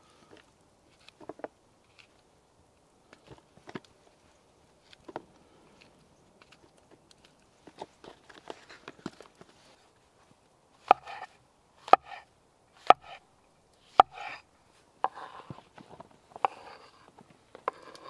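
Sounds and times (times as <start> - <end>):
knife scraping board: 10.9 - 13.2, 14.0 - 14.4, 15.0 - 15.6, 16.3 - 18.0.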